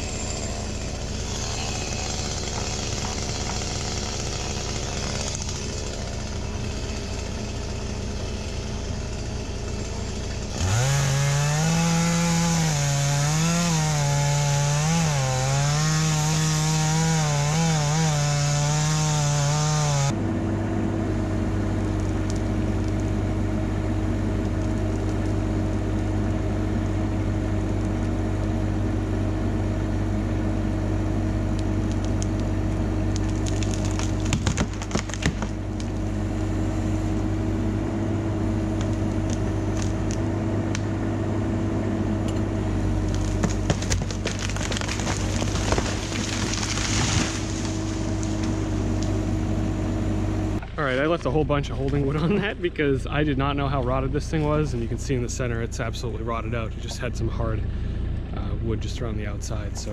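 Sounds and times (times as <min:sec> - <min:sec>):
engine running steadily: 0:00.0 - 0:59.9
dead wood cracking and crunching: 0:00.7 - 0:20.2, 0:21.8 - 0:23.2, 0:24.2 - 0:26.4, 0:31.5 - 0:36.1, 0:38.7 - 0:40.9, 0:43.0 - 0:49.2.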